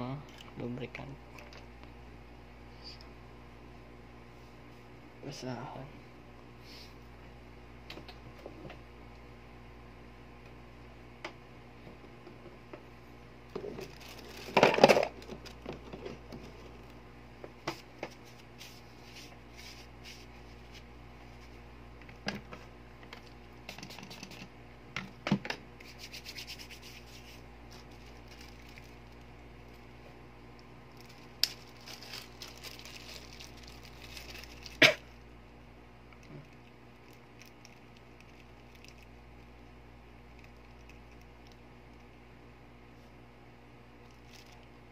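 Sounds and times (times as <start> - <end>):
hands rubbing and scraping parts: 17.7 - 21.6, 23.7 - 24.5, 25.8 - 28.9.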